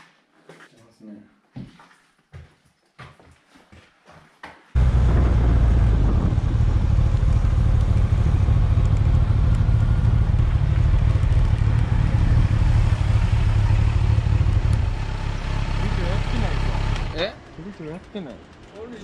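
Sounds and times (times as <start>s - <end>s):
wind noise: 4.8s - 15.3s
motorcycle engine rumble: 4.8s - 19.0s.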